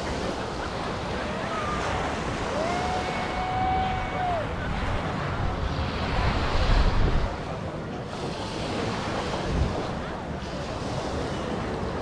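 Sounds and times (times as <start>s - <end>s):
ocean surf breaking: 0.0s - 12.0s
wind buffeting microphone: 0.0s - 12.0s.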